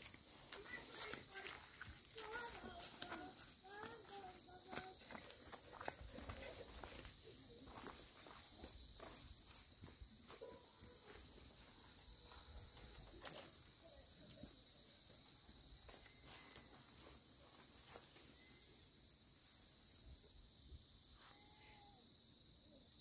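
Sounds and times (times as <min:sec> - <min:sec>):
light footsteps: 0:00.0 - 0:18.2
high-pitched insect chorus: 0:00.0 - 0:23.0.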